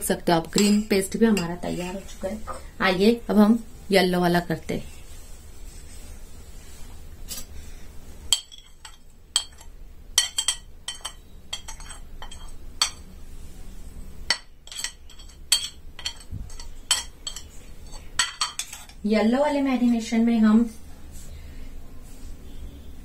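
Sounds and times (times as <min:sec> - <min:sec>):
metal spoon clinking on bowls: 0:00.5 - 0:01.7, 0:08.3 - 0:13.1, 0:14.3 - 0:19.0.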